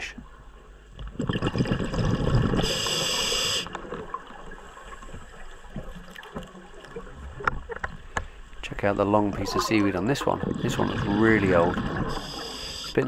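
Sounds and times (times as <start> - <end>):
bubbles gurgling underwater: 1.0 - 7.9, 9.2 - 12.7
regulator air hiss: 2.6 - 3.7, 12.1 - 13.0.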